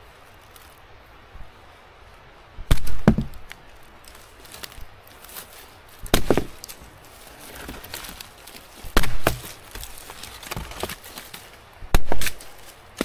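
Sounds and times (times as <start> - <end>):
chopping blows on wood: 2.7 - 3.4, 6.1 - 6.6, 8.9 - 9.6, 11.9 - 12.4.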